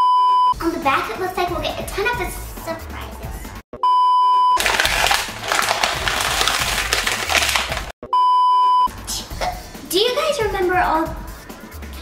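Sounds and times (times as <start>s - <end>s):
music: 0.5s - 3.6s, 4.6s - 7.9s, 8.8s - 12.0s
electronic beep: 3.8s - 4.6s, 8.0s - 8.9s
plastic wrap crinkling: 4.6s - 7.9s.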